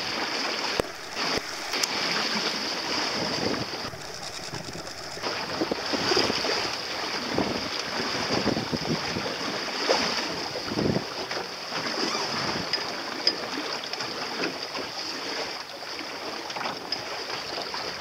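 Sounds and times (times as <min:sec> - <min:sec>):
water splashing against hull: 0:00.0 - 0:11.2.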